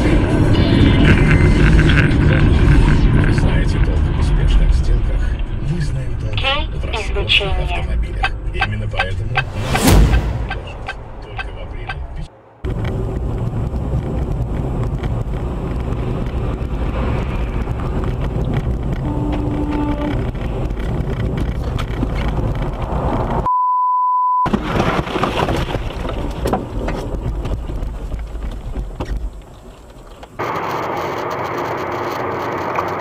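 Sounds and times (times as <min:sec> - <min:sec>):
road and engine noise in car: 0:00.0 - 0:09.7, 0:10.3 - 0:23.5, 0:26.0 - 0:33.0
censor bleep: 0:23.5 - 0:24.5
car knocking through deep snow: 0:24.5 - 0:29.5.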